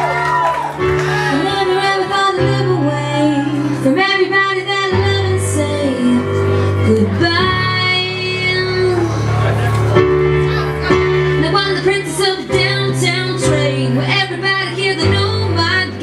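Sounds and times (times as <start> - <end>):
woman singing: 1.2 - 9.2, 11.4 - 16.0.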